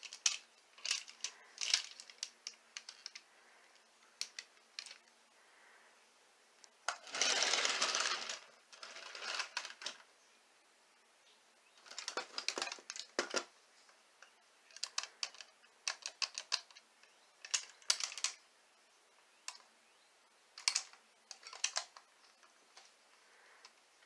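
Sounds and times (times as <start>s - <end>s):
plastic toy train parts clacking: 0.0s - 5.1s, 6.9s - 10.0s, 11.8s - 13.5s, 14.2s - 18.4s, 19.4s - 19.7s, 20.6s - 22.9s.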